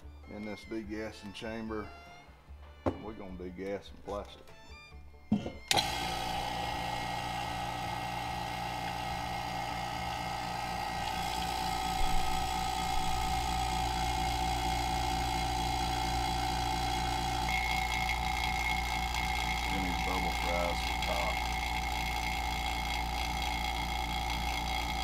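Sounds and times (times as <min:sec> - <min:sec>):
electric vacuum pump running: 0:05.3 - 0:25.0.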